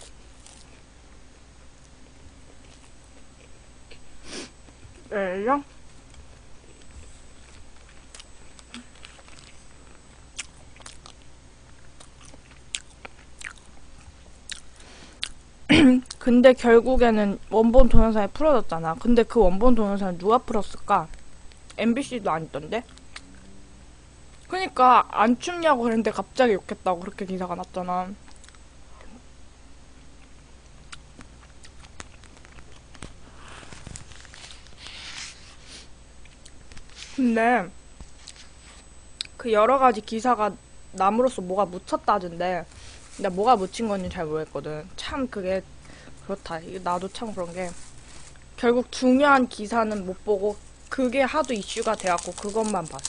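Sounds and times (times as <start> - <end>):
chewing and mouth sounds: 6.8 - 15.4, 30.2 - 34.1.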